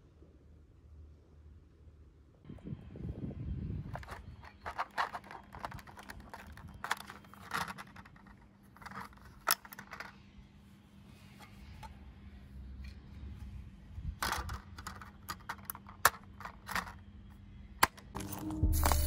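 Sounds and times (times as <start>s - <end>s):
plastic clicks and rattles: 3.9s - 10.2s, 14.2s - 17.0s.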